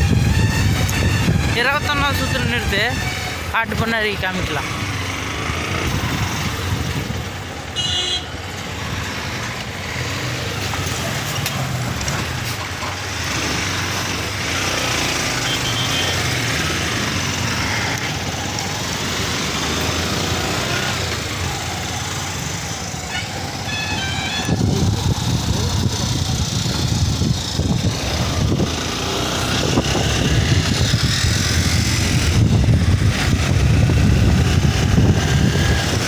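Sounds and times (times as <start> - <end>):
lorries passing: 0.0 - 36.0
motorcycle engine: 0.0 - 36.0
road and wind noise: 0.0 - 36.0
short high-pitched horn toot: 15.4 - 16.2.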